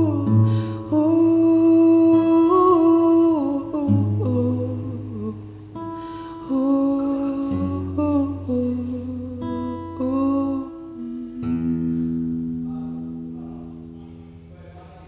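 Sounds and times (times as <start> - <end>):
woman singing wordless note: 0.0 - 5.4, 6.4 - 12.0
acoustic guitar: 0.0 - 15.0.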